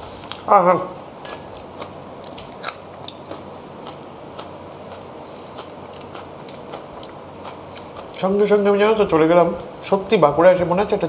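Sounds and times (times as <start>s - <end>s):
person chewing crunchy food: 1.3s - 8.4s.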